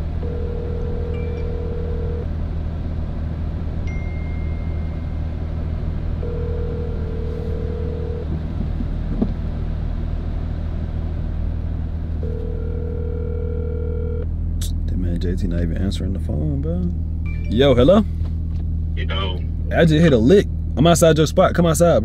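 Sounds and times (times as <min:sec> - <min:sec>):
car engine and road noise: 0:00.0 - 0:22.0
phone ringback tone: 0:00.2 - 0:02.3, 0:06.2 - 0:08.3, 0:12.2 - 0:14.2.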